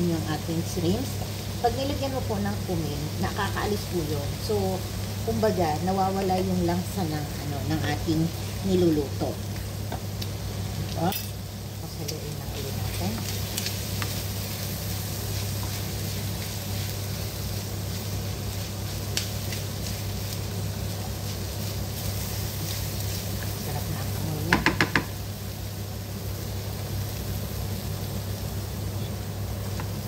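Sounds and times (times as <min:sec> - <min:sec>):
food sizzling in a frying pan: 0:00.0 - 0:30.0
steady low hum: 0:00.0 - 0:30.0
wooden spatula stirring: 0:12.8 - 0:25.2.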